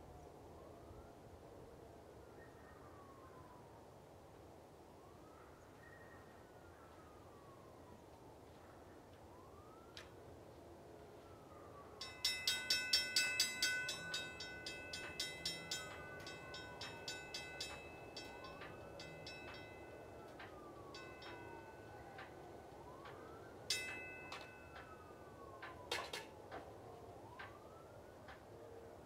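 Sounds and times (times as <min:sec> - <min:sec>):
faint siren-like wail: 0:00.0 - 0:29.0
railroad crossing bell ringing: 0:12.0 - 0:26.3.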